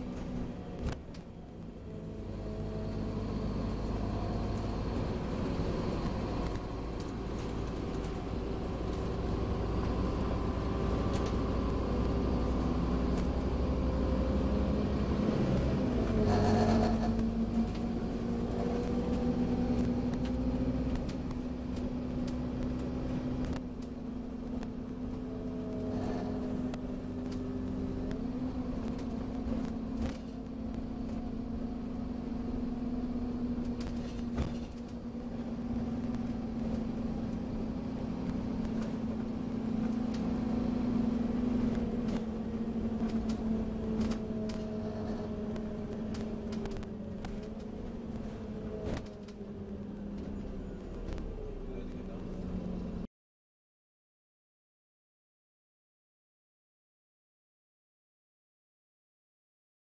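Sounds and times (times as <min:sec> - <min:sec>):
bus engine rumble: 0:00.0 - 0:53.1.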